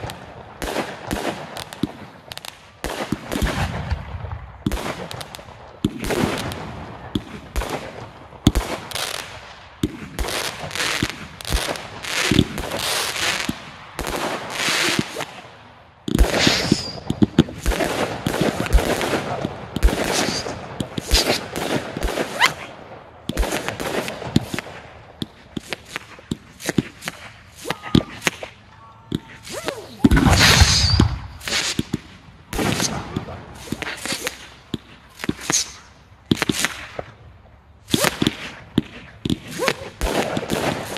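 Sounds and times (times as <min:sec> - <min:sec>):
fireworks crackling: 0:00.0 - 0:40.9
firework shells bursting: 0:16.1 - 0:22.6, 0:23.3 - 0:37.2.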